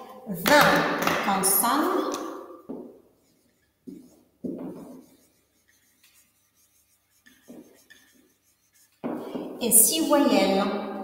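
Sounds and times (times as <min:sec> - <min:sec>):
marker scratching on whiteboard: 0:00.5 - 0:09.9.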